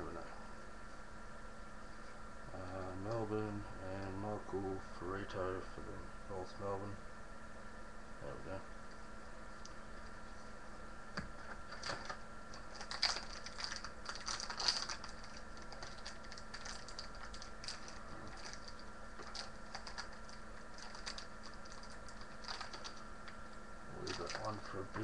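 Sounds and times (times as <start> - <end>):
card packet tearing and crinkling: 11.7 - 23.0, 24.0 - 24.8.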